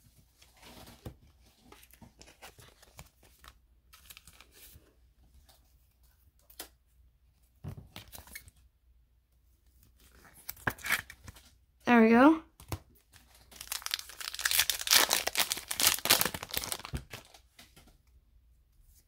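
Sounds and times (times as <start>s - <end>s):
card and plastic sleeve rustling: 0.2s - 6.8s, 9.7s - 11.6s, 12.6s - 17.9s.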